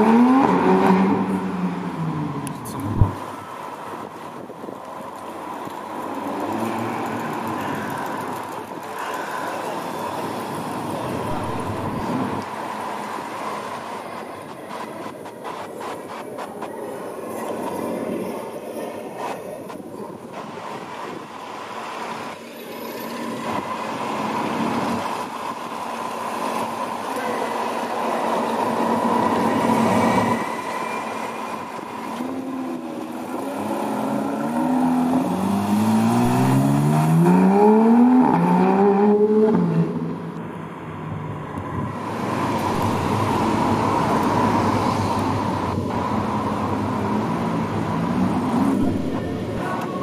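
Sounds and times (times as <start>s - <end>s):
street and engine hum: 0.0s - 50.0s
sports car accelerating through upshifts: 33.4s - 40.2s.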